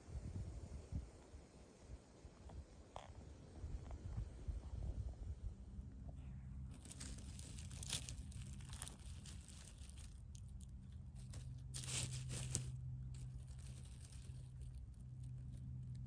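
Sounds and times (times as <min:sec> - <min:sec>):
needles and litter crackling: 0:06.2 - 0:16.0.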